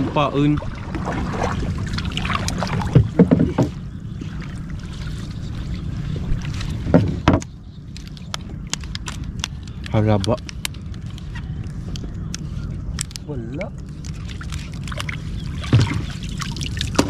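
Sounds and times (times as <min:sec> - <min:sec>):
low engine rumble: 0:00.0 - 0:17.0
water splashing: 0:00.0 - 0:17.0
knocks on boat: 0:02.8 - 0:03.8, 0:06.8 - 0:07.5, 0:15.7 - 0:16.1.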